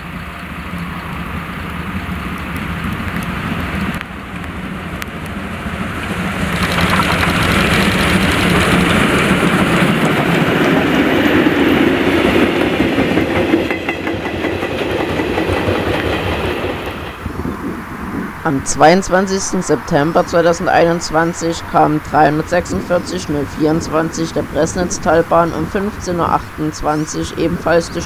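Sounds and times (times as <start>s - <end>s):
wheels clicking over rail joints: 0.0s - 17.3s
steam locomotive passing: 0.0s - 28.0s.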